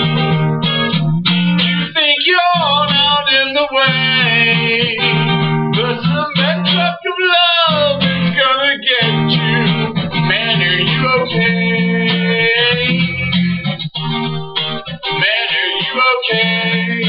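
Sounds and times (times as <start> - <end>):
strummed acoustic guitar: 0.0 - 17.0
pitch-bending melody line: 2.6 - 6.9, 7.7 - 17.0.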